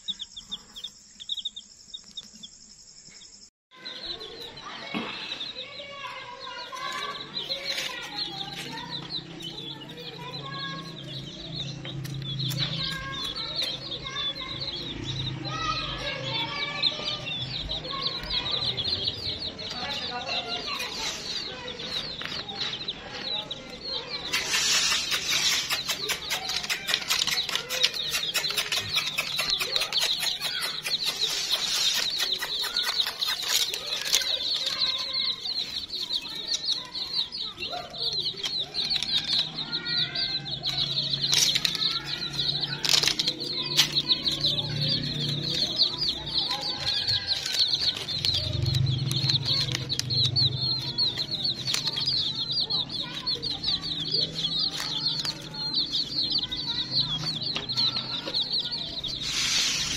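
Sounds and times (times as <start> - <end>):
chicks peeping: 0.0 - 59.9
sharp little clicks: 24.2 - 37.2.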